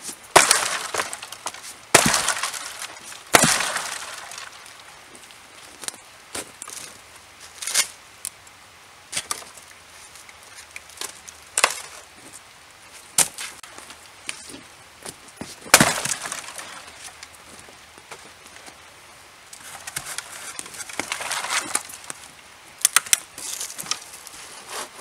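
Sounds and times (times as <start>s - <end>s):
dry branches snapping: 0.3s - 4.9s, 9.1s - 12.1s, 15.7s - 17.3s, 19.6s - 24.3s.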